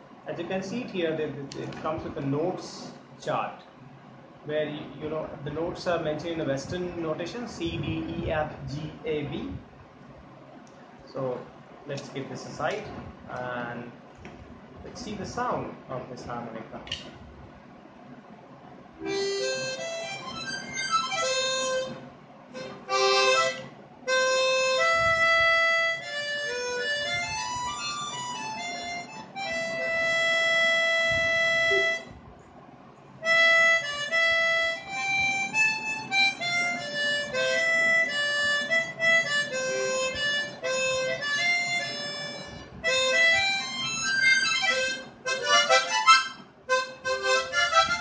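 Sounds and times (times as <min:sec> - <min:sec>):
tremolo harmonica melody: 0:19.0 - 0:32.1, 0:33.2 - 0:48.0.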